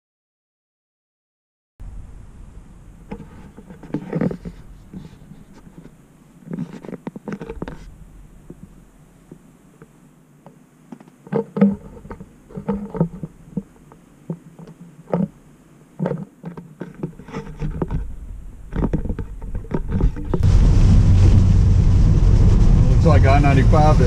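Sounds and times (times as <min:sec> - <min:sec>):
car engine and road noise: 0:01.8 - 0:06.2, 0:17.6 - 0:24.0.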